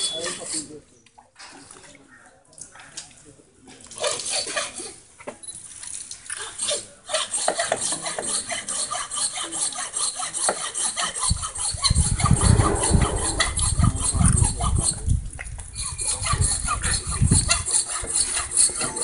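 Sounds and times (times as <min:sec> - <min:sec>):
hand saw scraping: 0:00.0 - 0:00.8, 0:04.0 - 0:05.0, 0:06.4 - 0:19.0
low rumble: 0:12.0 - 0:14.8.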